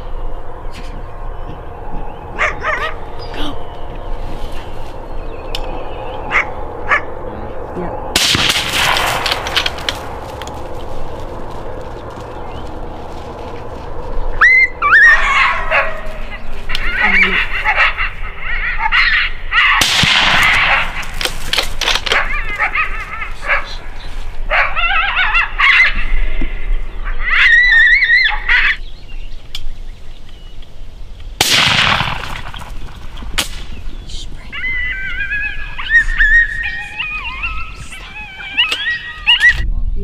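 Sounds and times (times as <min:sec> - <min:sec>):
coyotes yipping and howling: 0:00.0 - 0:29.5, 0:31.8 - 0:39.7
loud gunshots: 0:08.2 - 0:09.9, 0:19.8 - 0:21.4, 0:31.4 - 0:33.8.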